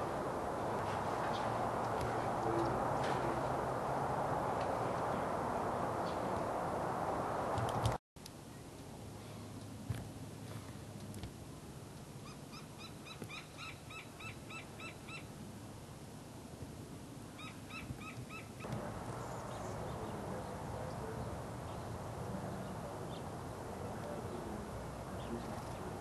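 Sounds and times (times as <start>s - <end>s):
loud steady hiss: 0.0s - 10.4s
outdoor hiss: 0.0s - 26.0s.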